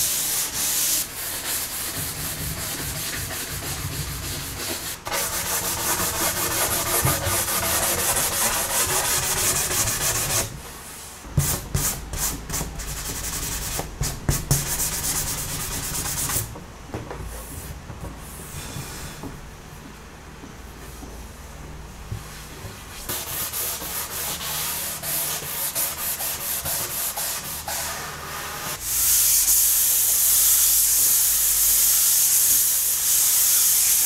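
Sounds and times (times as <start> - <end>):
sanding sponge scratching wood: 0.0 - 10.5, 23.0 - 34.0.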